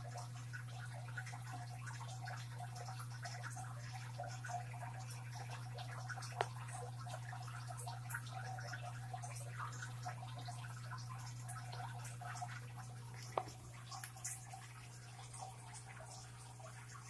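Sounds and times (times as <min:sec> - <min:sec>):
aquarium water bubbling: 0:00.0 - 0:17.0
water drips and splashes: 0:00.0 - 0:17.0.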